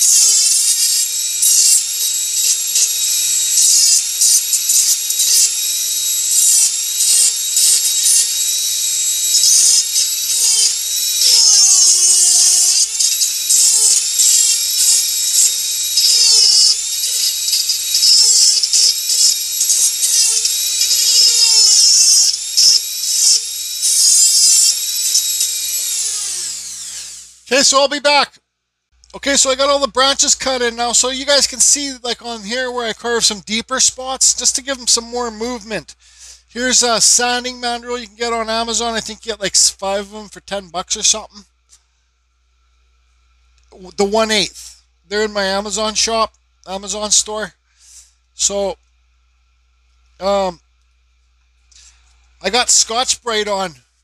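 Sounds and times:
burr grating into wood: 0.0 - 27.5
rotary tool high whine: 0.0 - 27.9, 29.1 - 41.8, 51.6 - 54.0.

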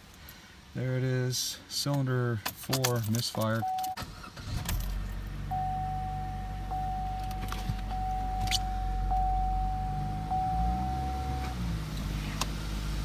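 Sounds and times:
car engine starting and idling: 3.6 - 13.0
electronic warning tone: 5.5 - 11.6.

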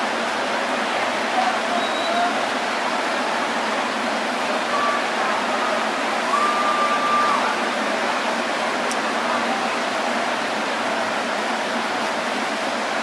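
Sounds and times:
stadium crowd murmur: 0.0 - 13.0
faint whistle-like tones: 1.7 - 2.3.

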